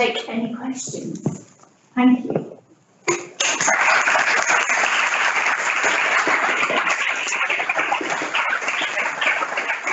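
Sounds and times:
audience applauding: 3.4 - 9.9.

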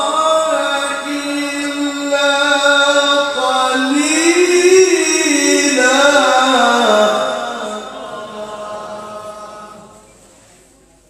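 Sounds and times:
man chanting melodically into microphone: 0.0 - 10.0.

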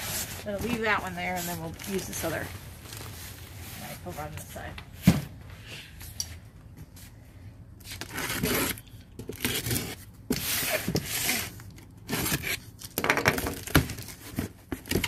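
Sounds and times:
knife cutting packaging: 7.9 - 15.0.

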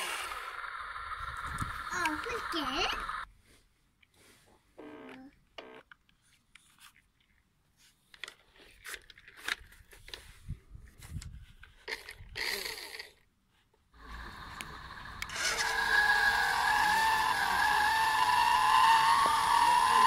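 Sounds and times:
plastic toy car handled: 5.9 - 10.4.

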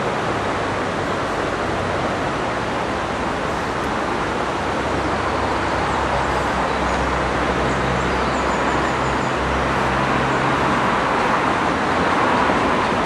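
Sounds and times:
steady rushing background noise: 0.0 - 13.0
steam train rumble: 8.7 - 13.0.

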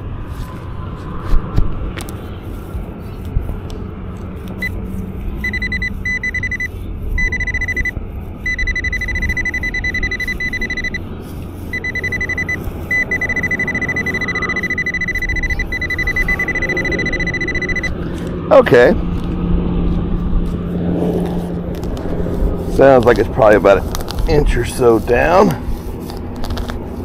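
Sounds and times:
low rumble: 0.0 - 23.2
pinpointer high beep: 5.4 - 11.0, 11.7 - 18.0.

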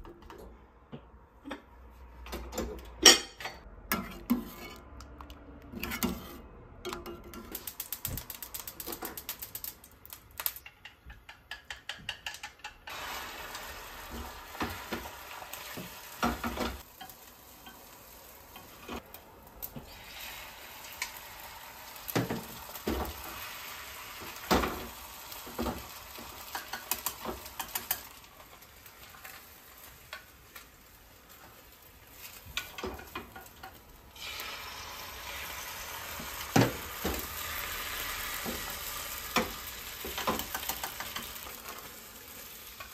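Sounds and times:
egg sizzling in a pan: 7.3 - 10.6, 12.9 - 42.9.

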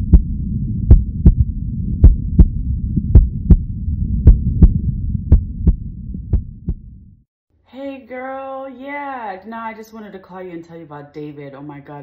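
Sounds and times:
heartbeat thumps: 0.0 - 7.1
low rumble: 0.0 - 7.3.

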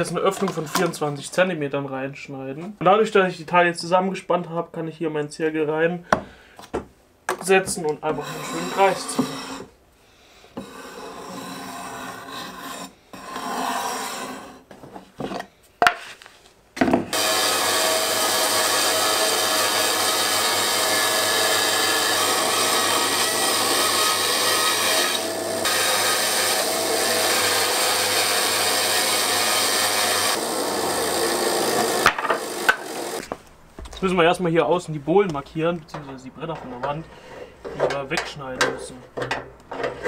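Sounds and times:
bandsaw cutting plywood: 8.1 - 9.7, 10.6 - 14.6, 17.1 - 33.4
compass point scratching plywood: 8.1 - 9.7, 10.6 - 14.6.

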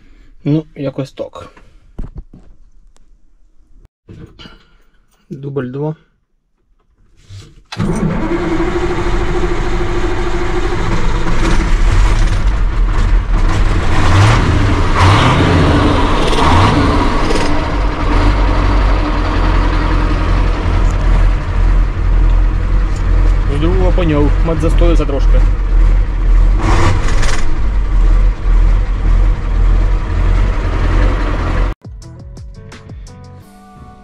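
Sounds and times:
diesel truck engine starting: 7.7 - 31.8
diesel engine running loudly: 7.8 - 31.8.

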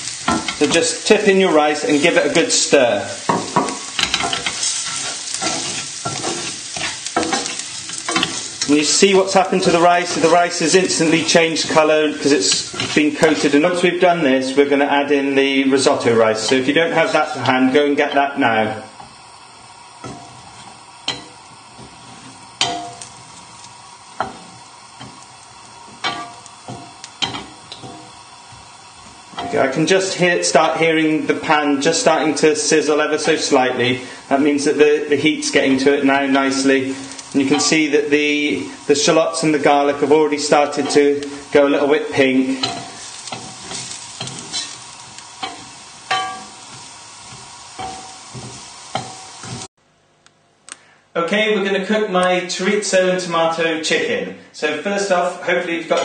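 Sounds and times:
wooden spoon scraping a frying pan: 0.0 - 13.9, 19.0 - 49.7
faint sizzle: 0.0 - 49.7.

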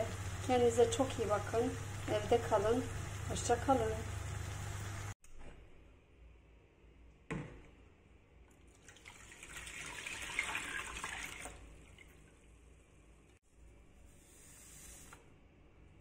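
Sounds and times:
liquid pouring and splashing: 8.6 - 12.5.

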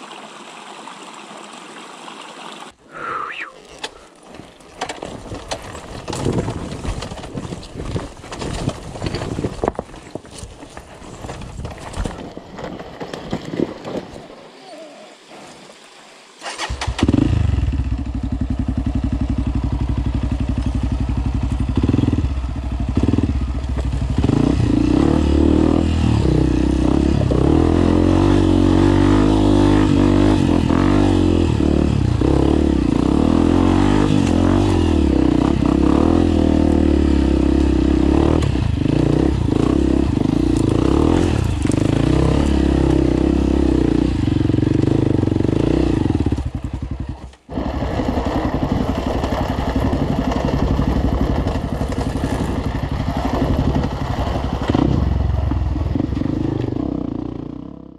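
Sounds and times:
dirt bike engine revving: 16.4 - 57.9.

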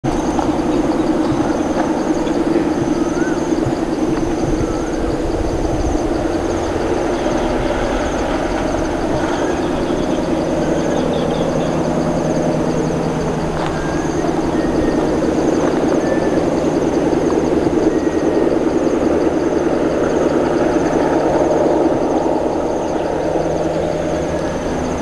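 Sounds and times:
distant diesel locomotive drone: 0.0 - 25.0
insects chirping: 0.0 - 25.0
bird chirps: 0.1 - 19.2.

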